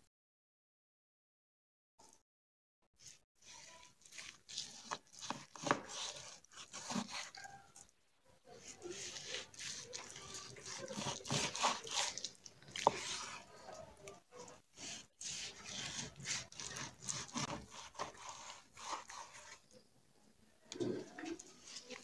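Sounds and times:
blade scraping cutting board: 3.0 - 7.4, 8.6 - 19.6
knife sawing through meat: 3.0 - 7.8, 8.5 - 19.6.

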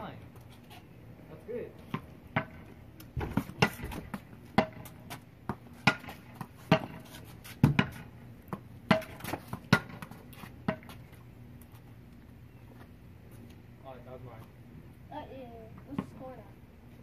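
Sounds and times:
ball bouncing on concrete: 1.8 - 11.8, 15.7 - 16.4.

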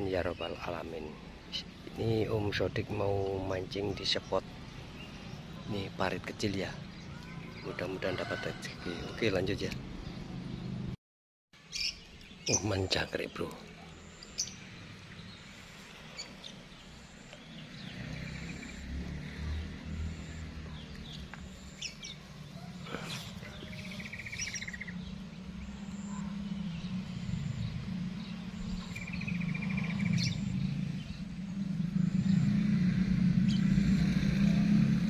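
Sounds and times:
small birds chirping: 0.0 - 10.9, 11.6 - 35.0
low engine hum: 13.6 - 35.0
buzzy bird trills: 20.2 - 32.5.

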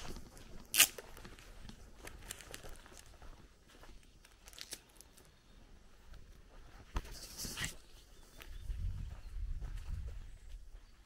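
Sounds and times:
loud sharp crunch: 0.0 - 3.1
footsteps on grassy dirt path: 0.0 - 11.0.

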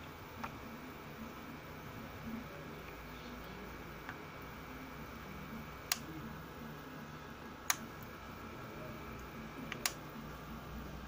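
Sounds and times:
humidifier hissing: 0.0 - 11.0
sharp clicks: 9.7 - 10.0.

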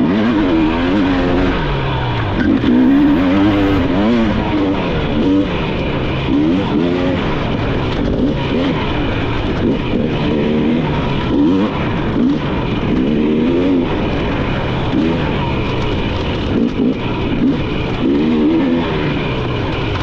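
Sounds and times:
dirt bike engine revving: 0.0 - 5.4.

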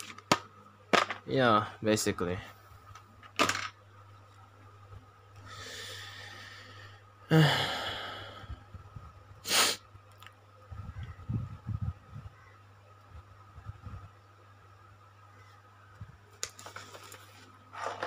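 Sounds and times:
sharp intake of breath: 5.4 - 8.6, 9.4 - 9.8
person breathing and sighing: 5.4 - 8.8.

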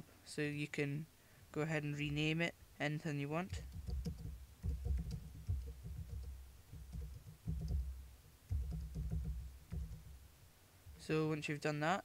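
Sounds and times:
keyboard typing: 3.5 - 10.2.

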